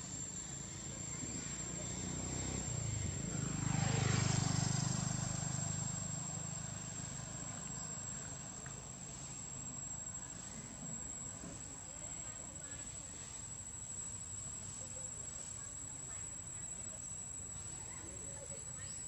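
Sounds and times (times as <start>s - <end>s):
insects whining: 0.0s - 19.0s
vehicle engine passing: 0.2s - 12.2s.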